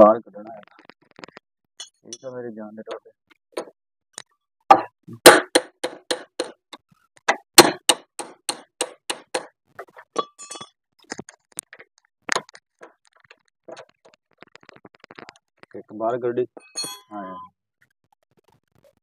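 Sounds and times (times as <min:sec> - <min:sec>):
metallic clinks: 0:10.2 - 0:10.8, 0:16.6 - 0:17.2.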